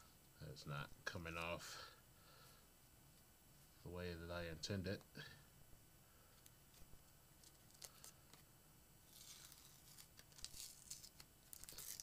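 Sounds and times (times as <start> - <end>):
cardboard box crinkling and tearing: 9.1 - 12.0.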